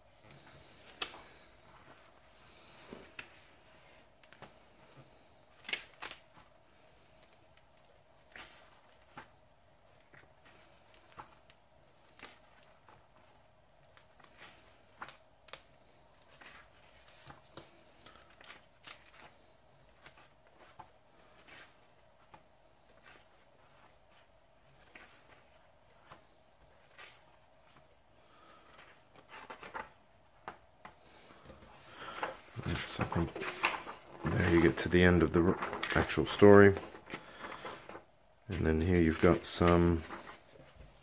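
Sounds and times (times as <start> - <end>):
faint steady hum: 0.0 - 41.0
pages turning: 0.2 - 3.6, 4.2 - 41.0.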